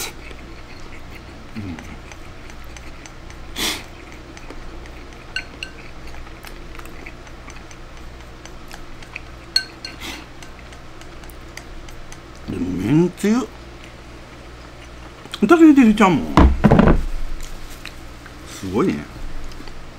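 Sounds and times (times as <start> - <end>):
eating noises: 0.0 - 16.2, 17.3 - 19.9
chopsticks scraping ceramic bowl: 4.9 - 6.3, 9.0 - 10.7.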